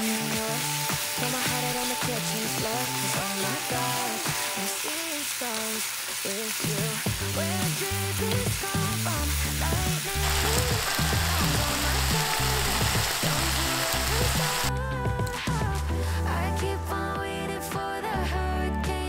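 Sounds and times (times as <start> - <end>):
background music: 0.0 - 5.8, 6.4 - 19.0
meat sizzling in a frying pan: 0.0 - 14.7.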